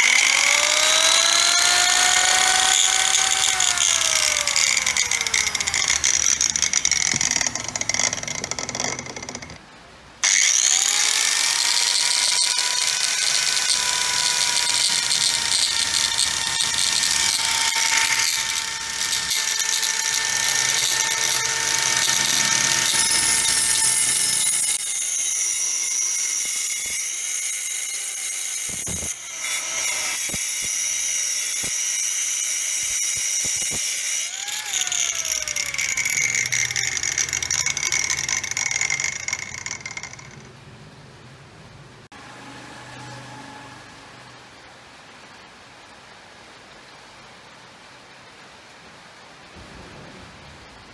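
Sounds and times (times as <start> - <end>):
circular saw motor whine: 0.0 - 9.6, 28.7 - 40.5.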